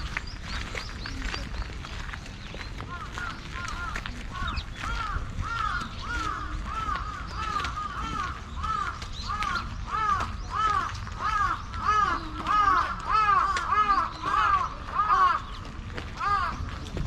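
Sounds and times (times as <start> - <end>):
crows cawing: 2.8 - 16.8.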